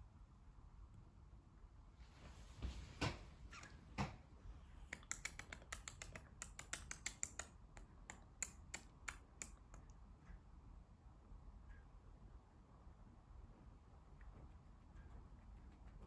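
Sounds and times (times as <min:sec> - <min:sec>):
cat tongue licking fur: 0:05.0 - 0:09.6.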